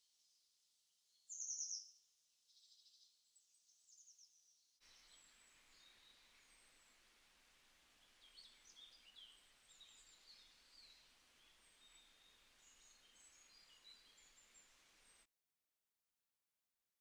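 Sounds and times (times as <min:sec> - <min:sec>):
small birds chirping: 0:01.1 - 0:15.3
faint background hiss: 0:04.8 - 0:15.3.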